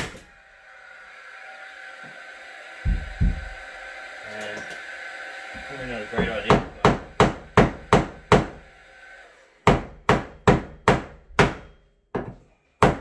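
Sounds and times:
hammer striking nails: 6.2 - 8.6, 9.6 - 13.0.

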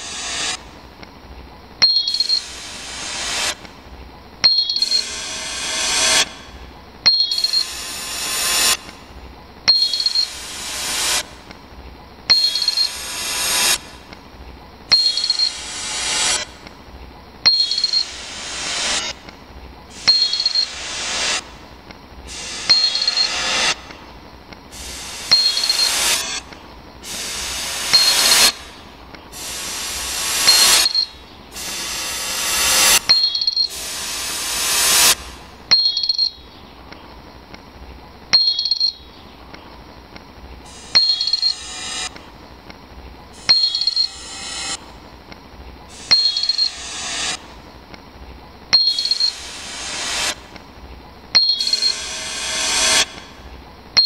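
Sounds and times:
loud hiss: 0.0 - 1.0, 1.6 - 35.7, 39.4 - 48.2, 48.9 - 53.9
hissing sound: 24.7 - 35.6.

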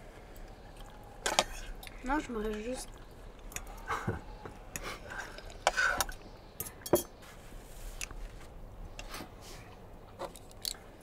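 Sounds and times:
tableware clinking: 6.6 - 7.2.

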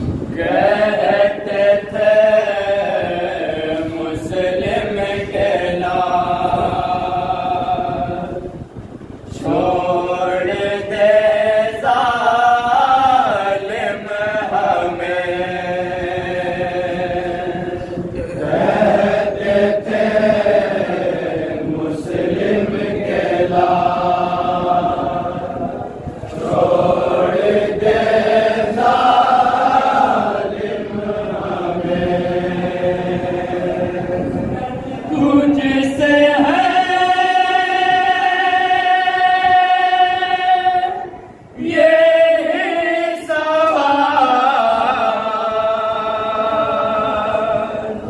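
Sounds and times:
men chanting a lament: 0.2 - 8.5, 9.3 - 48.0.

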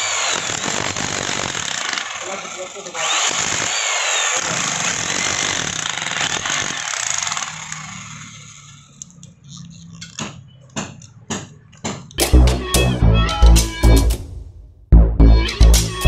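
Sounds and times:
rotary hammer chiselling wood: 0.0 - 12.2.

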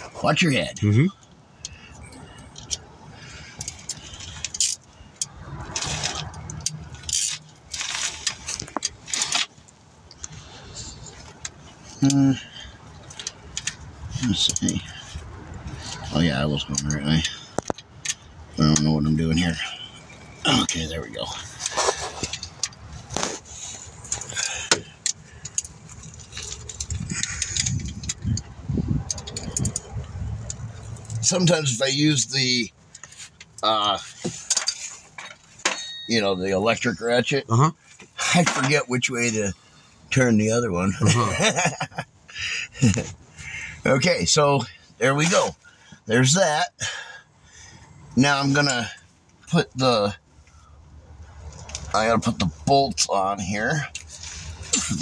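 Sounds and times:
metal tools clinking and rattling: 1.7 - 9.6, 10.2 - 31.9, 32.9 - 39.4, 53.9 - 55.0
hand tools clinking on metal: 23.5 - 31.6, 33.0 - 37.0.

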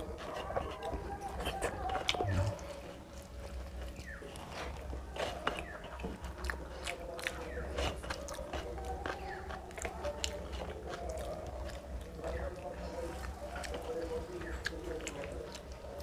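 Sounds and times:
food squelching on metal plate: 0.0 - 16.0
wet chewing and mouth smacks: 0.0 - 16.0.

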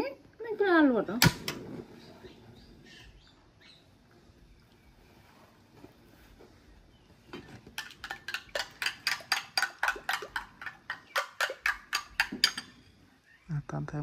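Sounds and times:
spoon clinking against bowl: 7.8 - 12.8.

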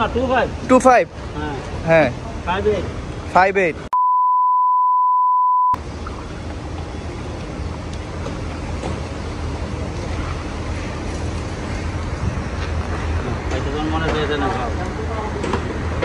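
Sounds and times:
wind: 0.0 - 3.9, 5.7 - 16.0
street noise: 0.0 - 4.0, 5.7 - 16.0
censor bleep: 3.9 - 5.8.

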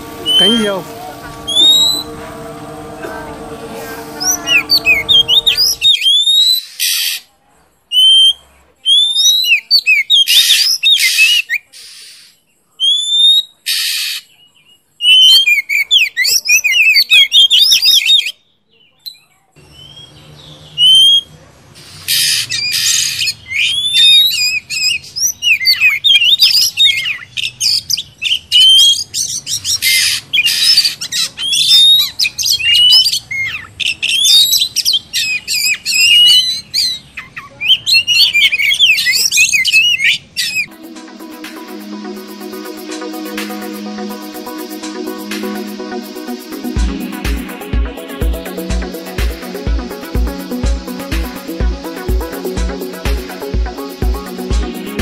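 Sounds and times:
birds chirping and whistling: 0.0 - 2.7, 4.2 - 7.1, 7.9 - 12.2, 14.7 - 18.3, 19.6 - 21.3, 21.9 - 40.7
harsh rasping bird calls: 0.0 - 3.0.

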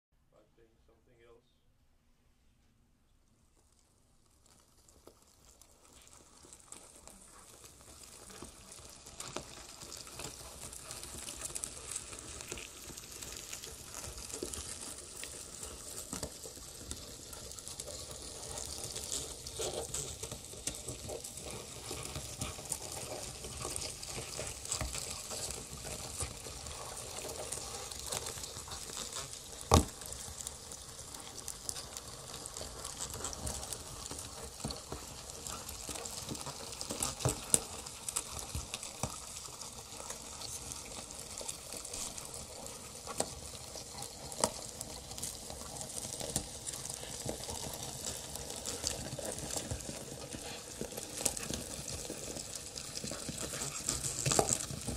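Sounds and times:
crackling electronic noise: 3.2 - 54.9.

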